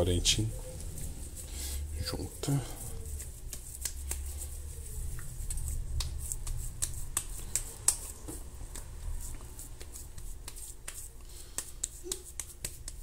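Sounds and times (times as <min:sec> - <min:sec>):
low steady hum: 0:00.0 - 0:13.0
hands slapping raw meat: 0:03.0 - 0:13.0.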